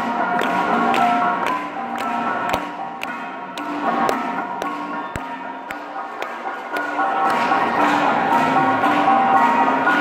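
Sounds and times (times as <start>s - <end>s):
sharp percussive strikes: 0.0s - 10.0s.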